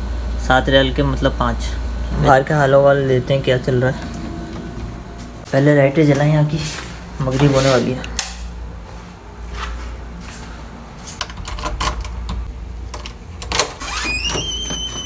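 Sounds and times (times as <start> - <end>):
low steady hum: 0.0 - 15.0
door hinge squeaking: 13.5 - 15.0.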